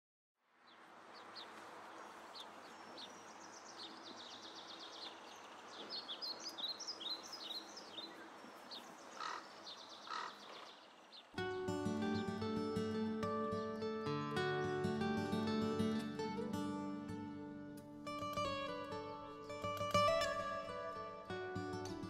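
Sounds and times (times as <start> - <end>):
small birds chirping and singing: 0.7 - 16.2
short low bird calls: 1.2 - 11.4.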